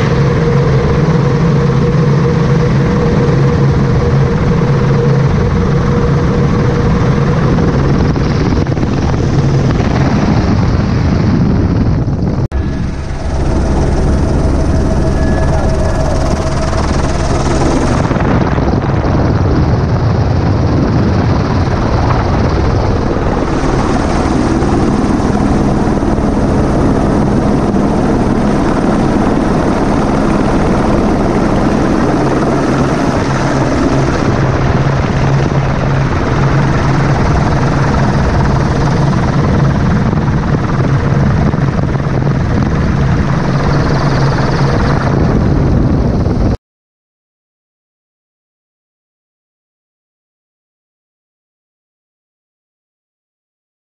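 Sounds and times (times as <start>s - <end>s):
helicopter engine and rotor noise: 0.0s - 46.6s.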